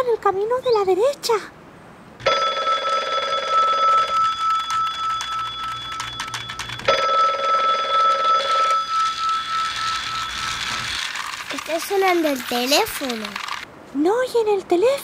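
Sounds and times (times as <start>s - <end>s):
telephone ringing: 2.2s - 13.6s
toy train rattling on plastic track: 4.0s - 13.6s.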